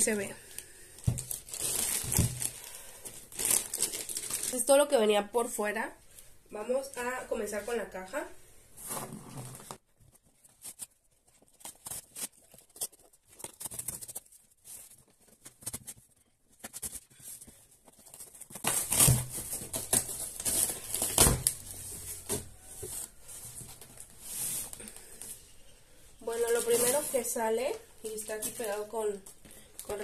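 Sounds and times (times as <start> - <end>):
cardboard tearing and rustling: 1.1 - 4.5, 10.5 - 16.0, 17.9 - 23.2.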